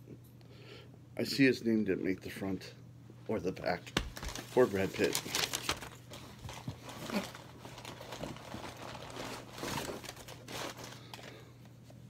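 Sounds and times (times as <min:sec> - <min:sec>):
tape cases rustling and crinkling: 0:03.9 - 0:11.4.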